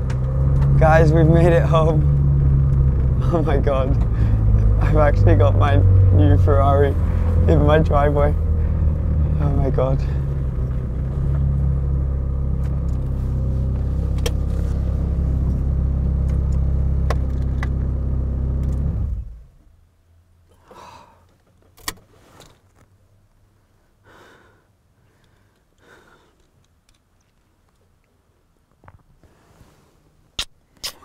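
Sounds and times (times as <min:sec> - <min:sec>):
car engine idling: 0:00.0 - 0:21.3
faint rustles: 0:21.1 - 0:23.8, 0:28.7 - 0:30.4.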